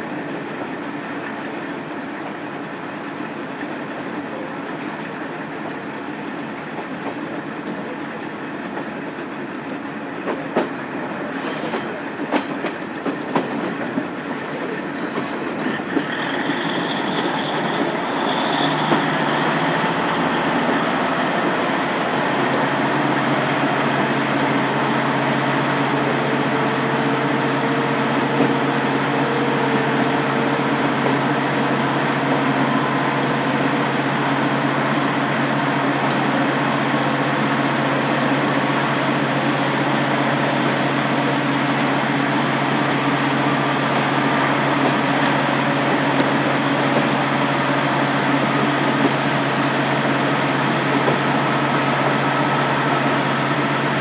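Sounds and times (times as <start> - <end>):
railcar running noise: 0.0 - 54.0
diesel engine running: 15.8 - 38.4.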